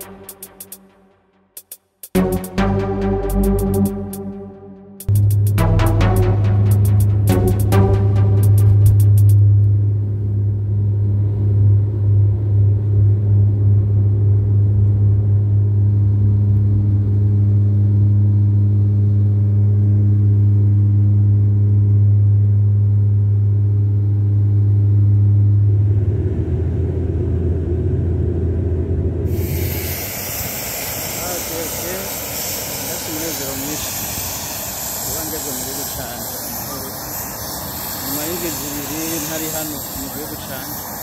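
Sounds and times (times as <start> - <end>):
airplane cabin propeller drone: 0.0 - 1.0, 2.2 - 41.0
rushing noise: 0.0 - 1.2, 2.1 - 9.4.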